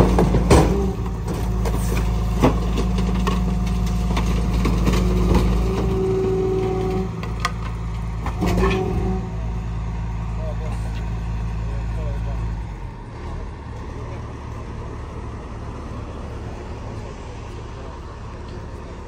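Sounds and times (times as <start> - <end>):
sharp knocks and clanks: 0.0 - 9.2
garbage truck running: 0.0 - 19.0.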